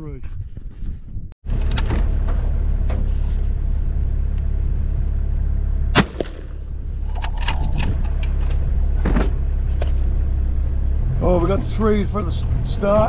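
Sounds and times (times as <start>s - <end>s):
vehicle engine idling: 1.4s - 13.0s
rifle shot: 5.9s - 6.7s.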